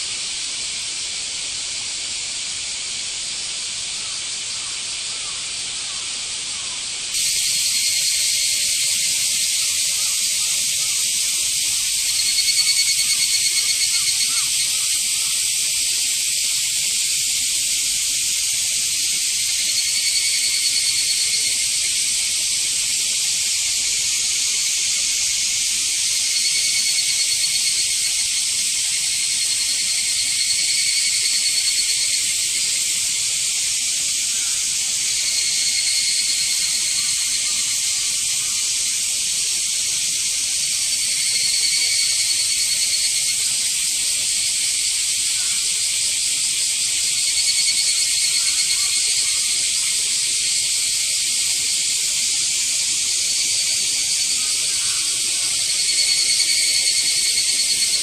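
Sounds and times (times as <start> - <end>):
cicadas chorus: 0.0 - 58.0.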